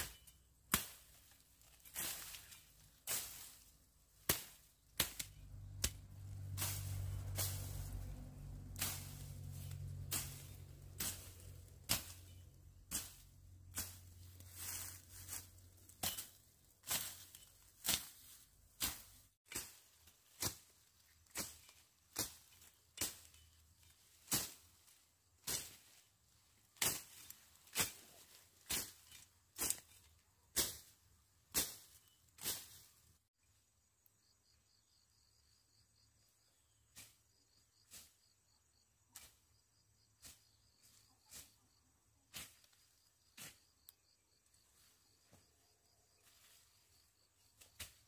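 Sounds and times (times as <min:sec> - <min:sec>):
hand tool striking: 0:08.6 - 0:18.2, 0:18.8 - 0:23.6.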